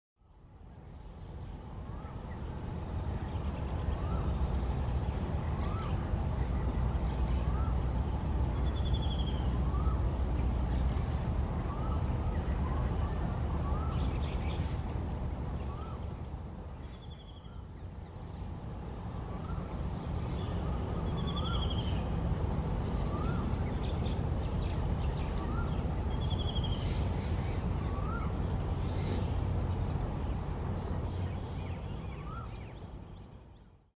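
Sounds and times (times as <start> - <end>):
steady low rumble: 0.2 - 33.9
birds calling: 1.7 - 33.2.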